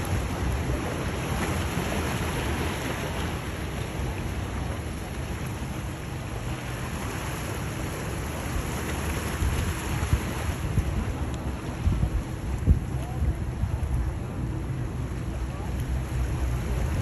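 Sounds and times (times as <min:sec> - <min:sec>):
choppy water wash: 0:00.0 - 0:17.0
outboard engines droning: 0:00.0 - 0:17.0
wind buffeting microphone: 0:09.0 - 0:17.0.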